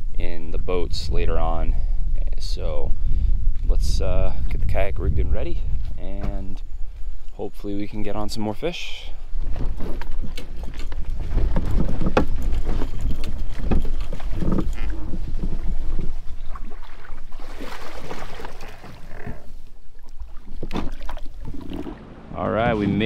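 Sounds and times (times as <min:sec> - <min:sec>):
wind rumbling on microphone: 0:00.0 - 0:23.0
kayak knocks and clunks: 0:06.0 - 0:06.5, 0:09.3 - 0:22.0.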